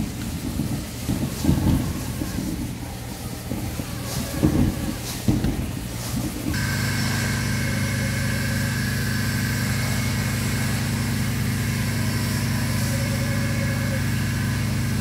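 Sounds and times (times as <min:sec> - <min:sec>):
machinery engine drone: 0:01.1 - 0:15.0
thin high whine: 0:06.5 - 0:15.0.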